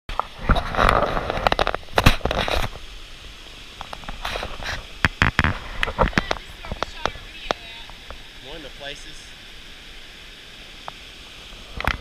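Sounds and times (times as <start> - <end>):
stream rushing over rocks: 0.1 - 12.0
microphone rumbling and knocks: 0.3 - 2.8, 3.9 - 8.2.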